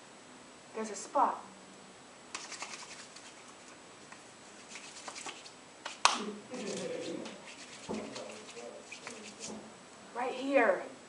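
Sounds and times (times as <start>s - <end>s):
hands rubbing together: 2.3s - 9.7s.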